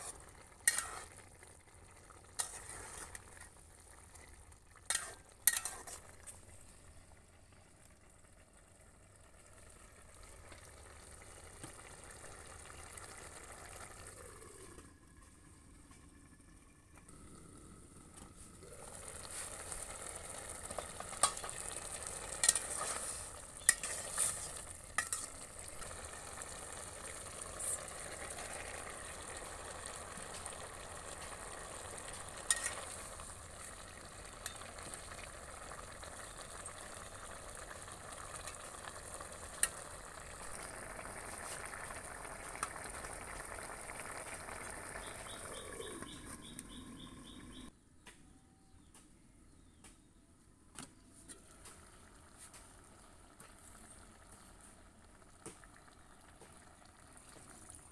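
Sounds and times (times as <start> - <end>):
curry sizzling and bubbling in pot: 0.0 - 47.7, 51.2 - 57.9
metal lid clinking: 4.9 - 6.1, 25.0 - 25.4.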